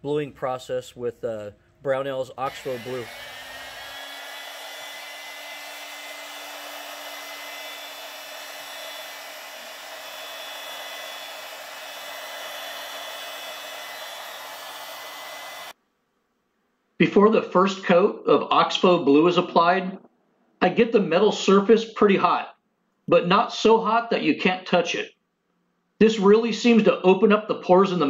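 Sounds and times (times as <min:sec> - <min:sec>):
heat gun blowing air: 0:02.4 - 0:15.8.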